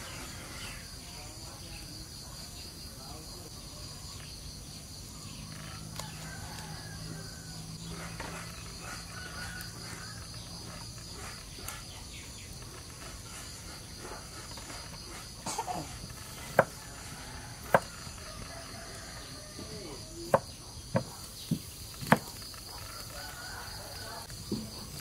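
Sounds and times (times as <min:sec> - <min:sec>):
high insect chorus: 0:00.0 - 0:25.0
knife chopping on cutting board: 0:16.5 - 0:16.8.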